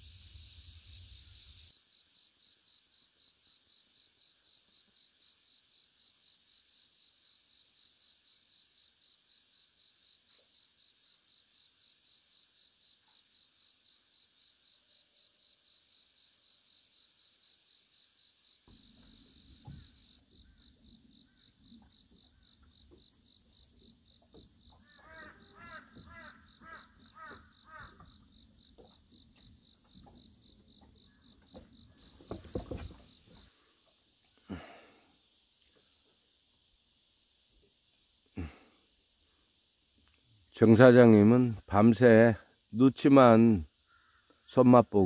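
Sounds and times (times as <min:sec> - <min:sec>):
insect pulsing trill: 0:00.0 - 0:36.0.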